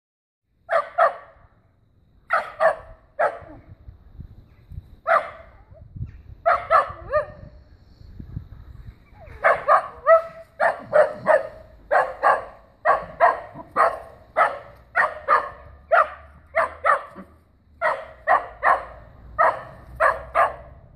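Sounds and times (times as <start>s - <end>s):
dog barking: 0.7s - 1.4s, 2.3s - 3.6s, 5.0s - 5.6s, 6.4s - 7.5s, 9.3s - 20.8s.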